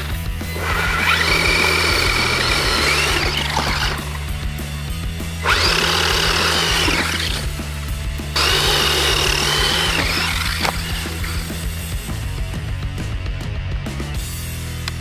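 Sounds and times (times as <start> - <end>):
background music: 0.0 - 15.0
toy car electric motor whining: 0.5 - 4.2, 5.4 - 7.5, 8.4 - 11.5.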